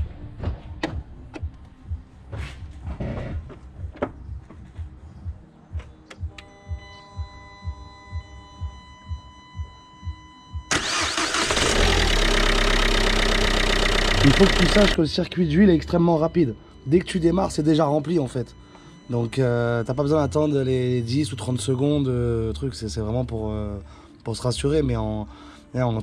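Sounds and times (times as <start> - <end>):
diesel engine idling: 10.7 - 15.0.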